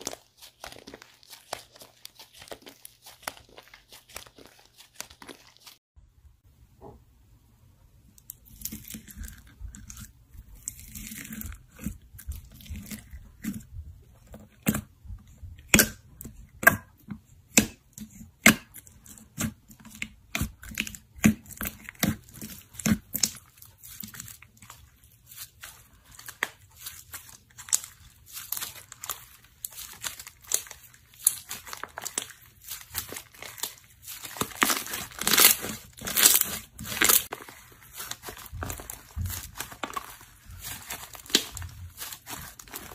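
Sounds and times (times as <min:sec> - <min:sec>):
slime crinkly crackle: 0:00.0 - 0:05.8, 0:20.4 - 0:42.9.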